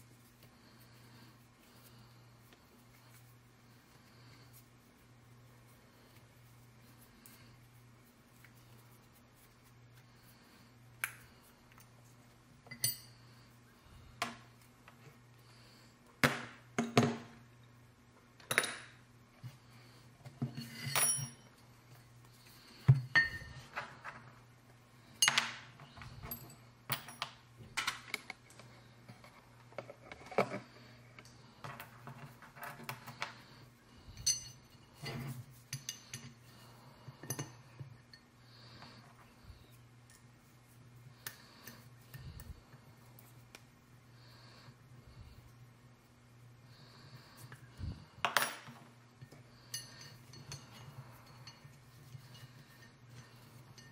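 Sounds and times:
faint steady hum: 0:00.0 - 0:53.9
metal parts clinking on workbench: 0:20.6 - 0:21.4.

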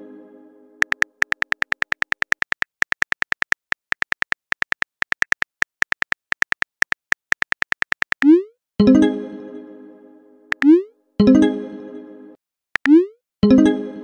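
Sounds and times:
keyboard key clicks: 0:00.8 - 0:08.3.

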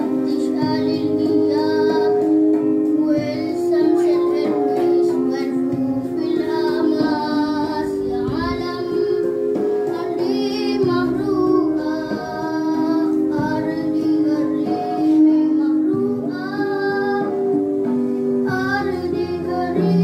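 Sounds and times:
high singing voice: 0:00.0 - 0:20.0
instrumental accompaniment: 0:00.0 - 0:20.0.

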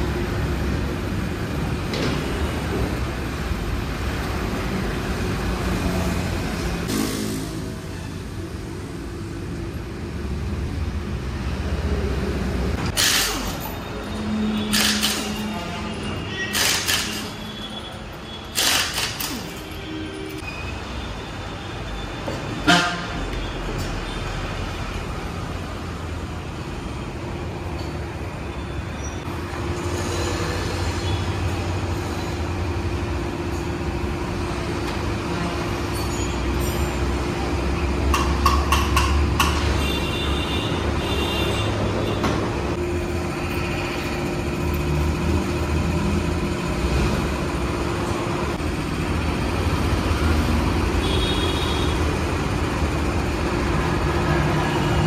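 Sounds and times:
machinery hum: 0:41.9 - 0:55.0.

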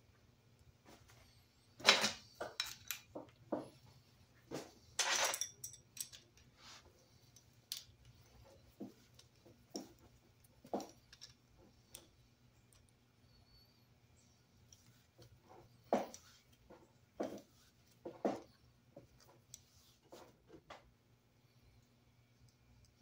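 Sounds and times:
wrenches clinking on metal fitting: 0:05.0 - 0:06.5.

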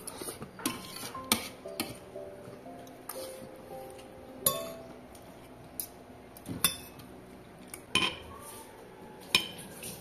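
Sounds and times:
cutlery clinking on plates: 0:07.9 - 0:08.3.

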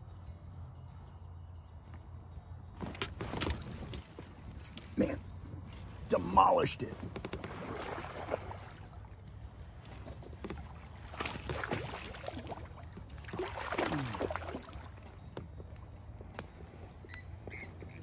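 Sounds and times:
fish splashing and thrashing in water: 0:07.1 - 0:09.1, 0:10.1 - 0:15.2.

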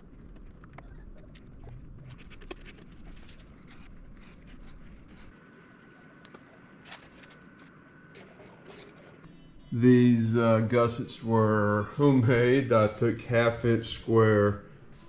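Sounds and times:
faint high tone: 0:09.3 - 0:10.4.

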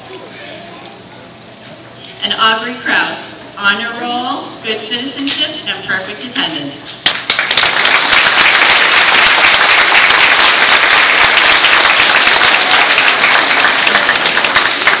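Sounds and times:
audience applauding: 0:07.0 - 0:15.0.

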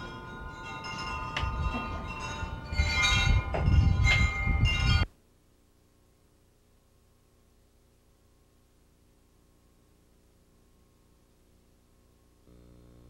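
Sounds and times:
bell-like chimes ringing: 0:00.0 - 0:05.1.

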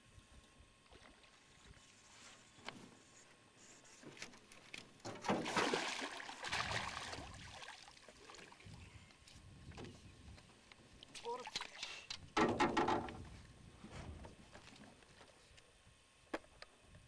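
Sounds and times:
fish thrashing and splashing: 0:05.2 - 0:08.0.

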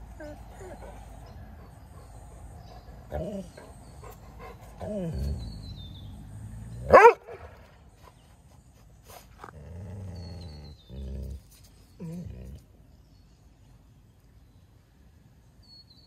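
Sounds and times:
dog growling low: 0:04.8 - 0:06.9, 0:09.4 - 0:12.7
dog barking: 0:06.9 - 0:07.5.

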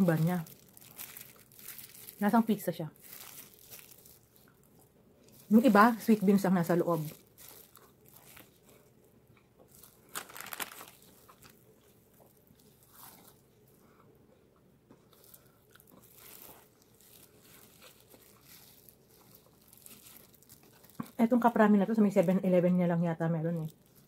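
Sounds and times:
short crackles: 0:09.9 - 0:11.6
chewing: 0:11.0 - 0:21.2.

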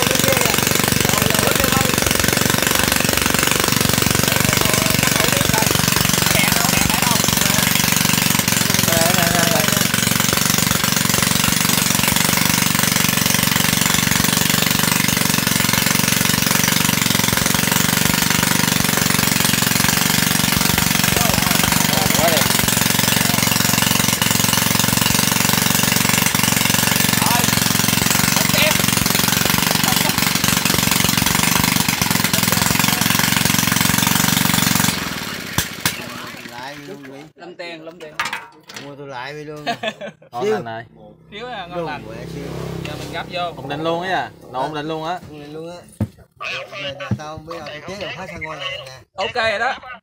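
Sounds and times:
small petrol engine running: 0:00.0 - 0:37.3, 0:41.3 - 0:45.5.

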